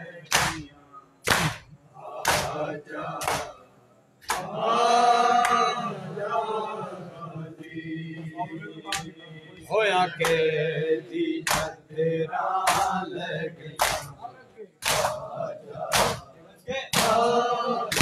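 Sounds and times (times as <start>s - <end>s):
men chanting a lament: 0.0s - 18.0s
chest-beating slaps: 0.3s - 2.6s, 3.2s - 3.6s, 4.2s - 4.6s, 11.4s - 11.8s, 12.7s - 13.0s, 13.8s - 14.1s, 14.8s - 15.3s, 15.9s - 16.2s, 16.9s - 17.2s.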